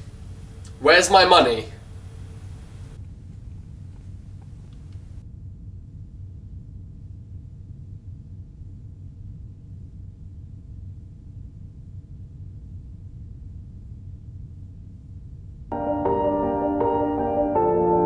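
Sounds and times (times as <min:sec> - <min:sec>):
low rumble: 0:01.4 - 0:15.8.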